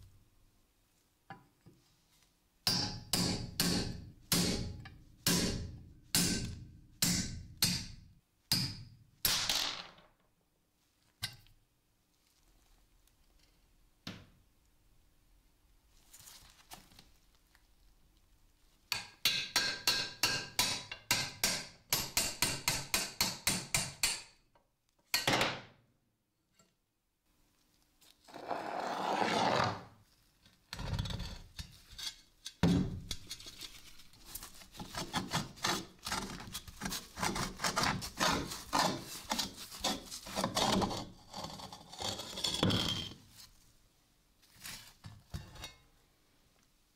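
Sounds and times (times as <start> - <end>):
hammer striking steel punch: 2.7 - 9.4
pulley scraping on bench: 28.3 - 29.8.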